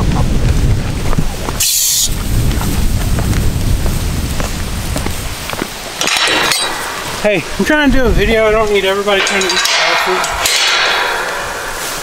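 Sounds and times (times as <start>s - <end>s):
wind buffeting microphone: 0.0s - 12.0s
short high hiss: 1.6s - 2.2s.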